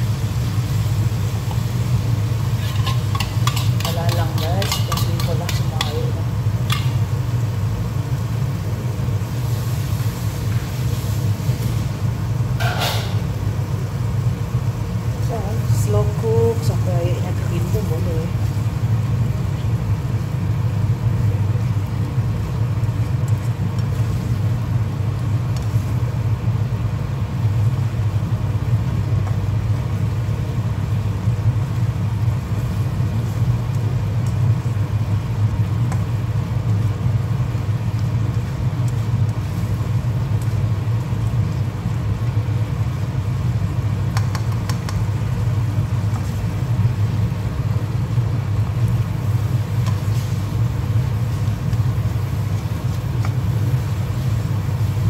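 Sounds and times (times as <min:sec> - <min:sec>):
spatula scraping in a wok: 0:02.4 - 0:07.0.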